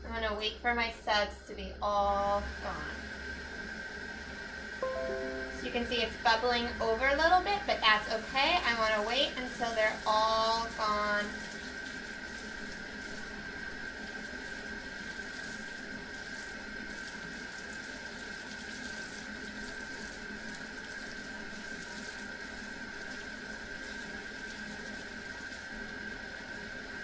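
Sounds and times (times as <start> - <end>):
steady high tone: 4.8 - 6.2
water overflowing into sink: 7.9 - 27.0.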